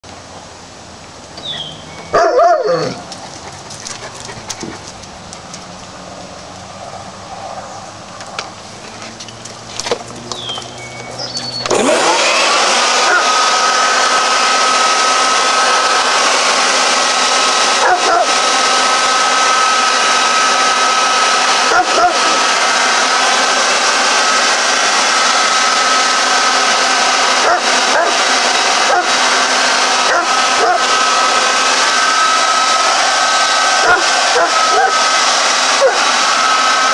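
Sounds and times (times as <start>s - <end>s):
hair dryer blowing: 8.0s - 36.9s
brief high squeaks: 10.4s - 11.8s.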